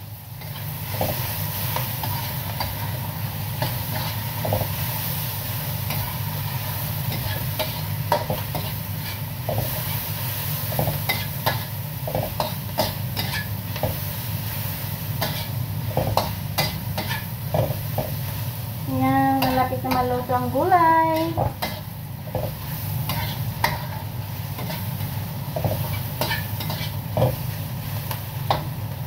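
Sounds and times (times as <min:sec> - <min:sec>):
vegetables sizzling in a wok: 0:00.0 - 0:29.0
spatula scraping a pan: 0:05.8 - 0:18.2, 0:21.2 - 0:28.6.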